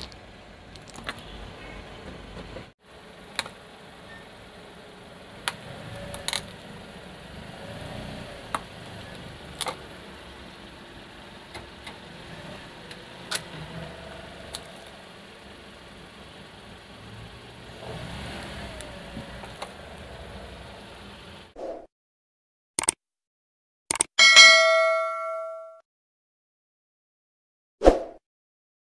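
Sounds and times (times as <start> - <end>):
car engine running slowly: 0.0 - 21.5
plastic toy cracking under tyre: 0.8 - 1.3.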